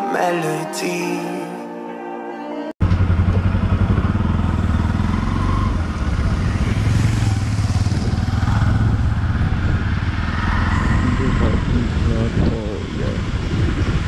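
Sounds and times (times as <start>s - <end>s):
motorcycle engine at low revs: 2.8s - 10.3s.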